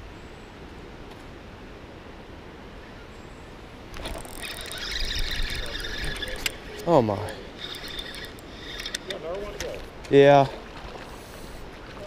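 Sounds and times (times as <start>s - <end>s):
fishing reel whirring and clicking: 3.9s - 9.7s.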